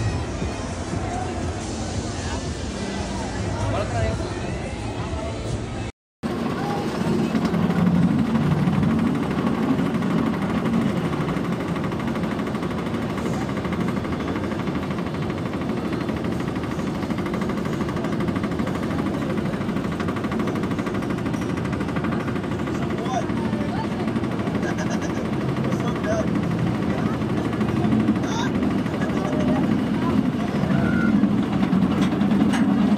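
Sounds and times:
roller coaster chain lift rattling: 6.4s - 32.9s.

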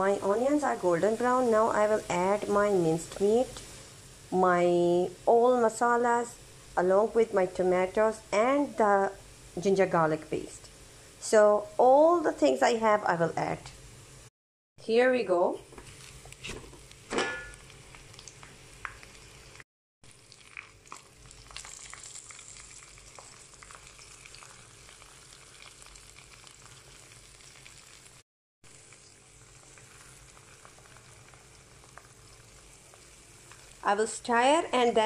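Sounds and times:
meat sizzling in a frying pan: 0.0s - 6.9s, 15.8s - 34.2s.

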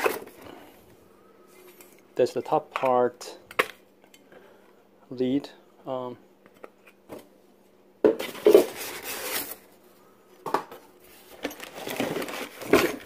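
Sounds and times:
foam and cardboard rustling: 8.2s - 9.8s, 11.1s - 13.0s.

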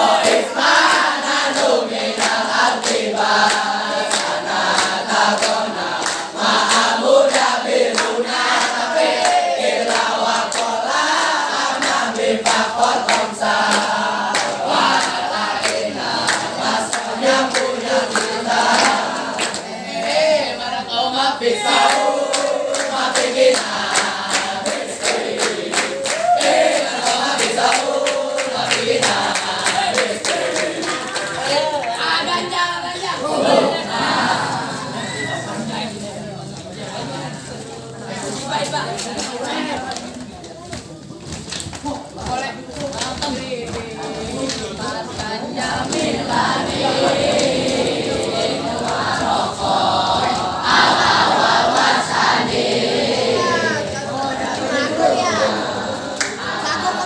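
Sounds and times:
boys chanting in unison: 0.0s - 41.0s, 41.8s - 57.0s
hand claps: 0.2s - 19.7s, 21.7s - 32.1s, 38.9s - 49.4s, 56.2s - 56.4s.

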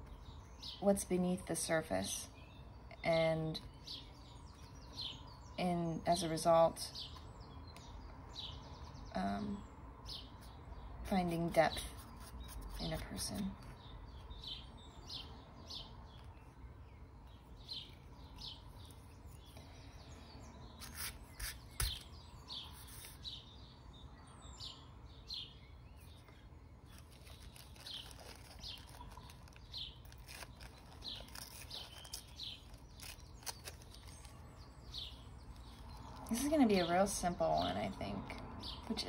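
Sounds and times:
bird chirping: 0.0s - 39.0s
tissue paper rustling: 26.9s - 34.2s.

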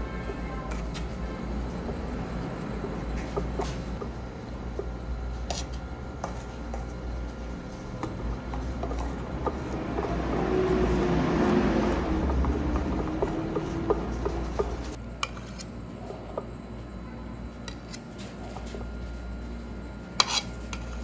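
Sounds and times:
steady low hum: 0.0s - 21.0s
spatula scraping cream: 8.1s - 16.4s, 20.2s - 21.0s.

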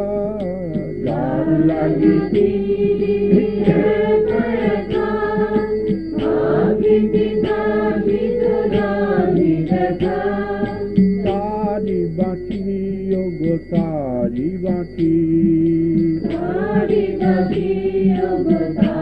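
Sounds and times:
held drone: 0.4s - 11.4s
voices chanting: 1.0s - 13.6s, 16.2s - 19.0s.

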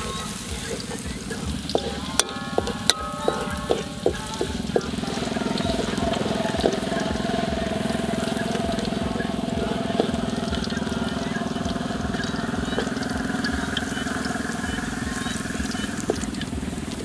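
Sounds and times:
small engine running: 0.0s - 17.0s
metal spatula clinking on wok: 1.6s - 10.2s.

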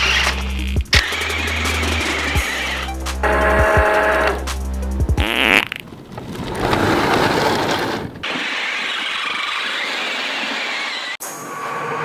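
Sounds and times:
toy tank motors and tracks running: 0.0s - 2.9s, 6.8s - 11.2s.

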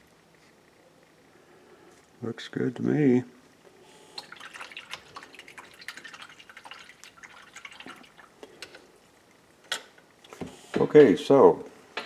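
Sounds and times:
water splashes and drips: 4.1s - 8.8s.

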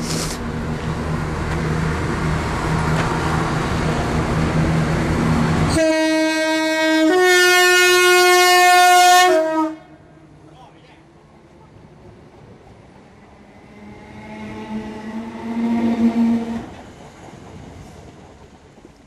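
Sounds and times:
electric train rumbling: 0.0s - 19.0s
two-tone train horn: 5.7s - 10.2s, 13.6s - 16.8s.

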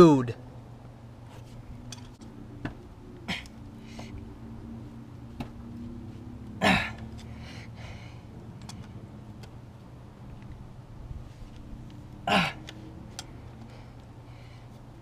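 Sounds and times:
steady low hum: 0.0s - 15.0s
man grunting: 6.6s - 7.0s, 12.2s - 12.7s.

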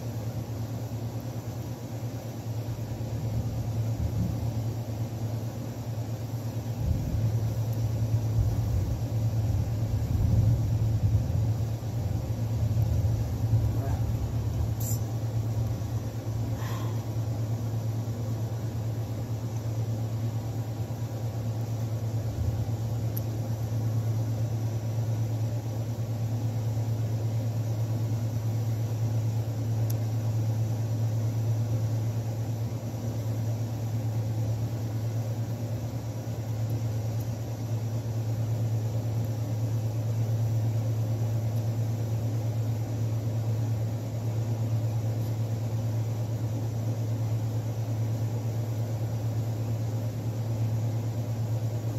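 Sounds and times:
low machine hum: 0.0s - 51.9s.

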